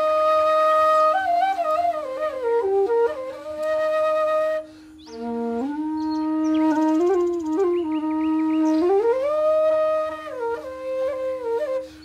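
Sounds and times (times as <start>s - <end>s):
flute playing slow melody: 0.0s - 12.0s.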